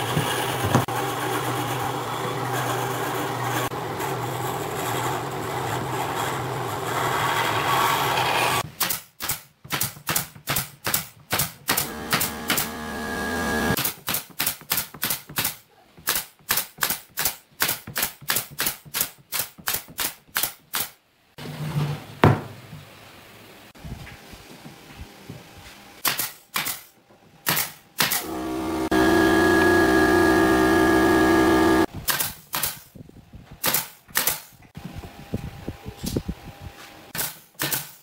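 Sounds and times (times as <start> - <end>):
nail gun firing into wood: 8.8 - 12.7, 26.0 - 28.3, 32.0 - 32.9, 33.6 - 34.6, 37.2 - 38.0
machine hum: 11.8 - 13.8, 28.2 - 31.9.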